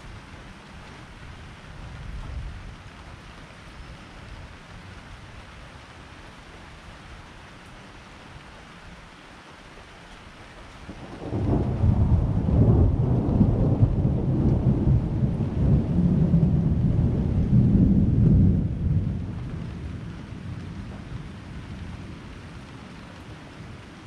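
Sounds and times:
rain hiss: 0:00.0 - 0:24.0
thunder rumbling: 0:10.9 - 0:22.9.

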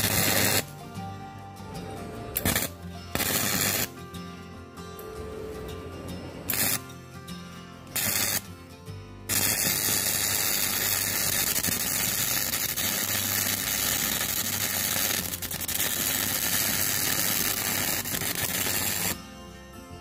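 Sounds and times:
welding arc: 0:00.0 - 0:00.8, 0:02.4 - 0:03.9, 0:06.4 - 0:06.8, 0:07.9 - 0:08.5, 0:09.3 - 0:19.2.

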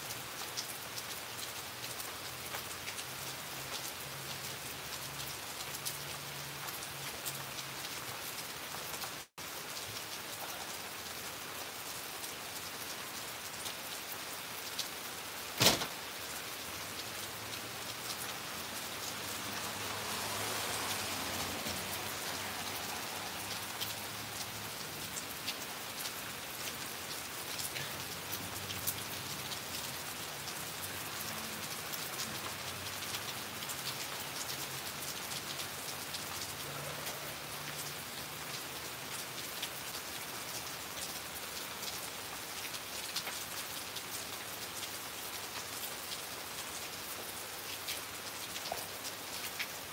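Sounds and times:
steady rain hiss: 0:00.0 - 0:49.9
sharp knock: 0:15.6 - 0:15.9.

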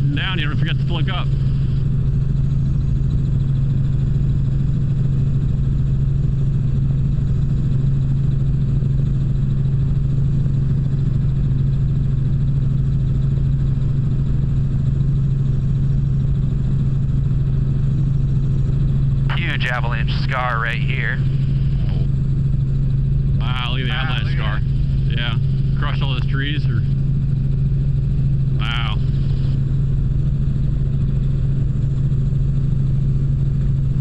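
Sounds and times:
helicopter engine and rotors droning: 0:00.0 - 0:34.0.

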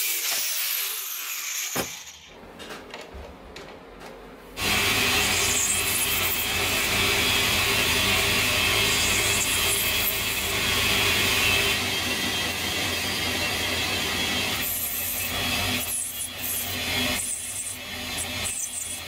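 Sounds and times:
lathe motor hum: 0:04.6 - 0:19.0
lathe tool scraping metal: 0:04.6 - 0:19.0.

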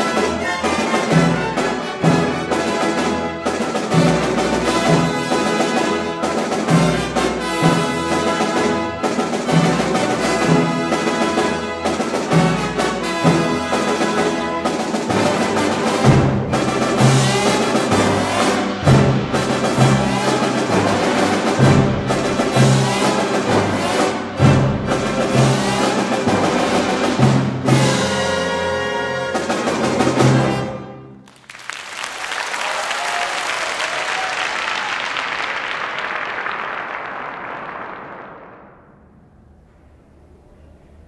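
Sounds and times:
symphony orchestra playing: 0:00.0 - 0:31.4
audience applause: 0:31.2 - 0:38.9.

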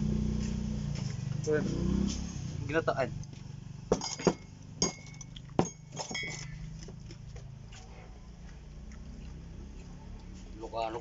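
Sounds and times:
metal spoon clinking on ceramic: 0:04.0 - 0:06.6.

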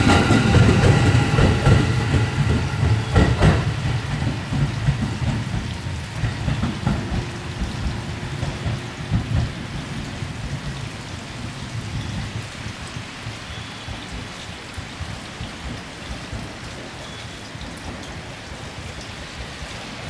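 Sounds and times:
hiss of rail and air: 0:00.0 - 0:13.5, 0:14.1 - 0:20.0
electric train rumble: 0:00.0 - 0:14.2.

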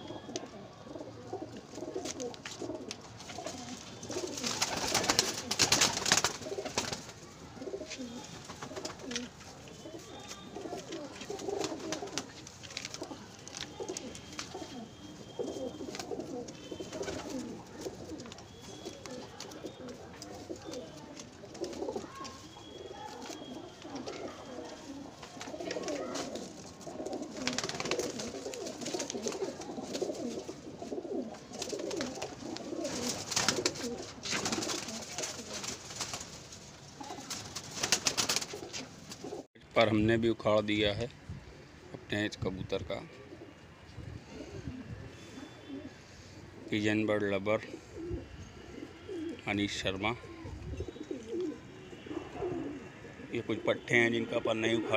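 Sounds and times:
pigeons cooing: 0:00.0 - 0:36.1, 0:37.0 - 0:39.5, 0:43.0 - 0:54.9.

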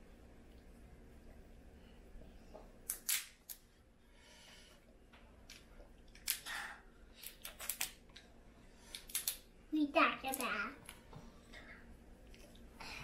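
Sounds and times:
crawfish shells cracking: 0:08.9 - 0:09.4.

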